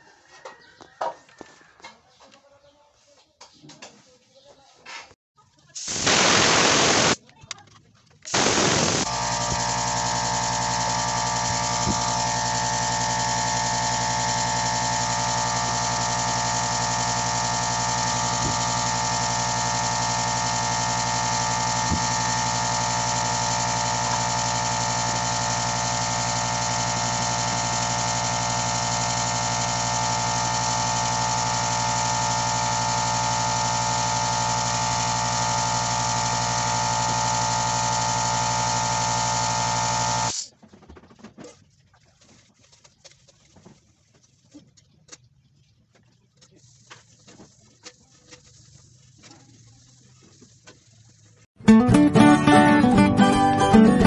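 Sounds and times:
air bursts: 0:05.8 - 0:07.2, 0:08.3 - 0:09.7
air compressor motor whining: 0:05.9 - 0:07.2, 0:08.3 - 0:40.5.

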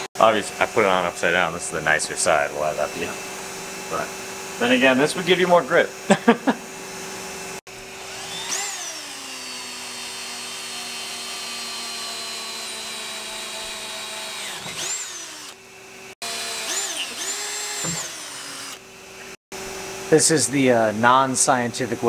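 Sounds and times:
electric drill boring: 0:06.8 - 0:19.4.

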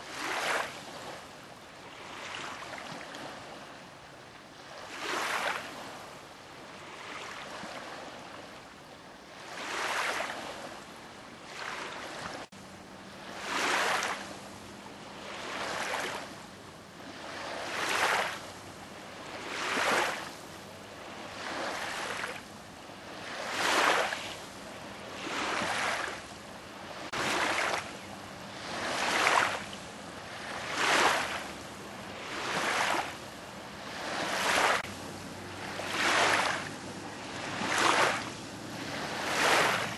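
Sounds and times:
waves washing over gravel: 0:37.6 - 0:38.3.

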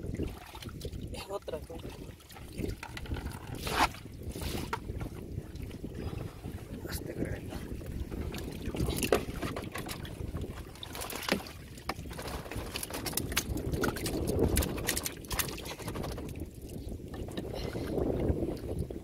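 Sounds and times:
water dripping and splashing: 0:00.0 - 0:03.4, 0:07.8 - 0:18.9
low wind rumble: 0:00.0 - 0:19.0.

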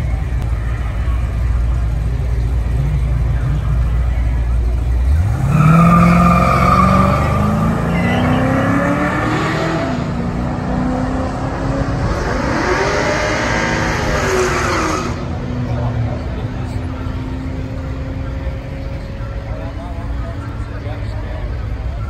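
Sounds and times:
cars accelerating at full throttle: 0:00.0 - 0:22.0.

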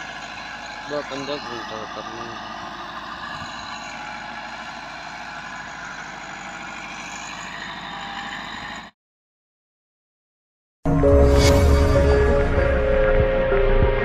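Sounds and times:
tractor diesel engine running: 0:00.0 - 0:08.9.

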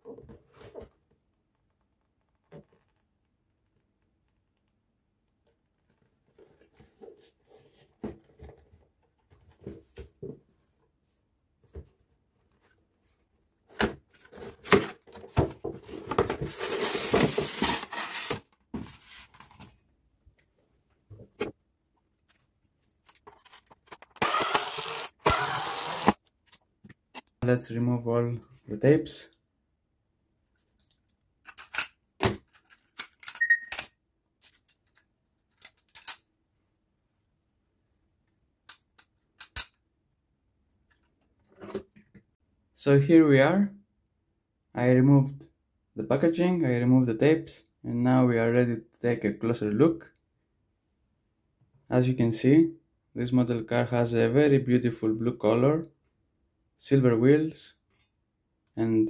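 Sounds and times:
cardboard rustling: 0:13.7 - 0:19.9.

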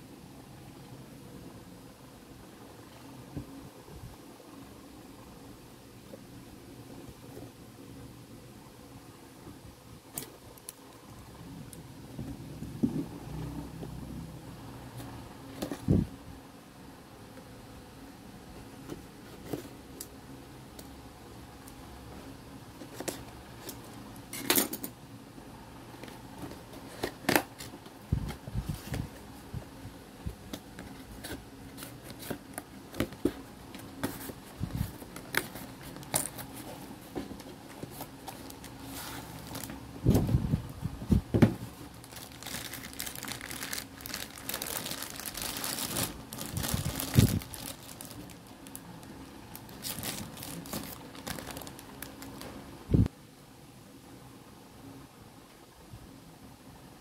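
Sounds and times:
plastic bags crinkling: 0:37.9 - 0:39.8, 0:41.8 - 0:52.6.

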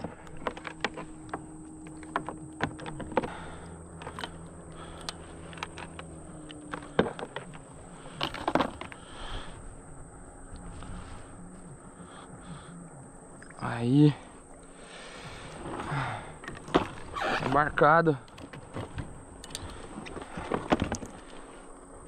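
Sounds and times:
clicks and knocks on plastic kayak: 0:00.0 - 0:04.4, 0:05.1 - 0:09.0, 0:18.3 - 0:21.4.

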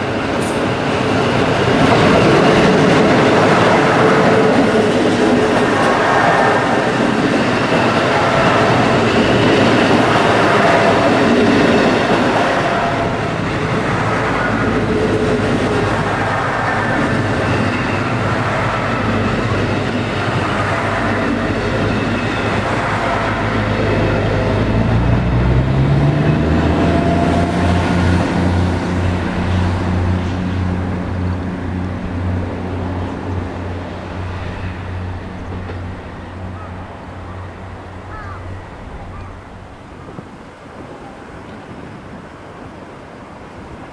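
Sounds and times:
train running noise: 0:00.0 - 0:43.9
low diesel engine hum: 0:21.2 - 0:39.9.

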